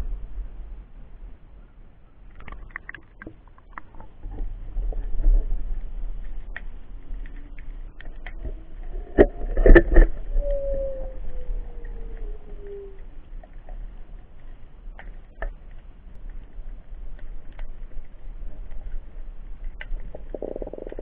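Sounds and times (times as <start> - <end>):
low underwater rumble: 0.0 - 21.0
underwater clicks and knocks: 2.3 - 10.5, 19.6 - 21.0.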